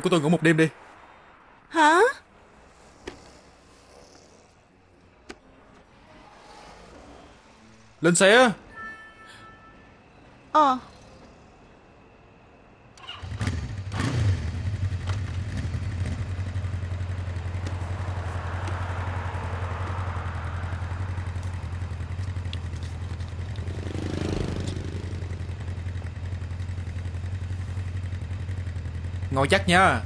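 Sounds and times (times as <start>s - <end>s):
motorcycle engine starting and idling: 13.0s - 30.0s.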